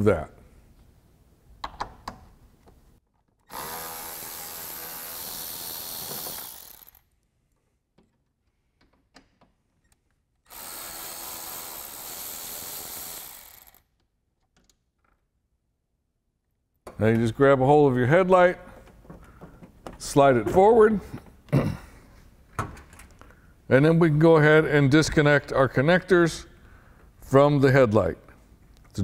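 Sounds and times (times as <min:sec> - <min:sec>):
electric ratchet running: 0:03.5 - 0:07.0, 0:10.5 - 0:13.9.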